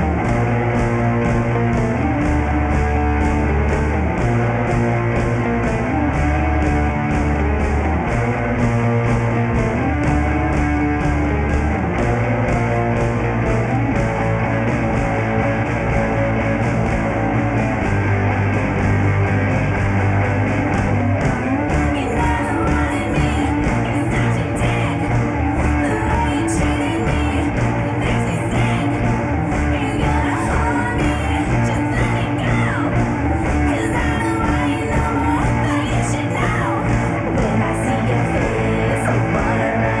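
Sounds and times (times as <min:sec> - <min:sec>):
rock band with electric guitar: 0:00.0 - 0:40.0
person singing: 0:21.8 - 0:40.0.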